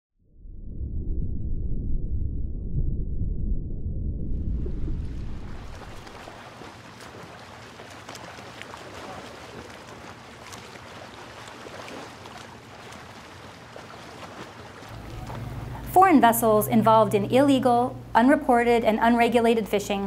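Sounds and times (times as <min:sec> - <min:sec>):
water washing: 0:04.7 - 0:20.0
small clicks and splashes: 0:05.5 - 0:15.4
faint low hum: 0:14.9 - 0:20.0.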